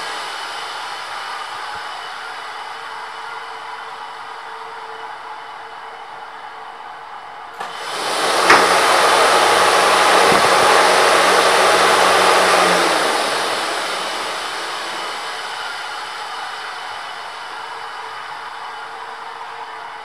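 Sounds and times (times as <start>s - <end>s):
low motor hum: 7.6s - 17.2s
fan rush of air: 7.6s - 19.7s.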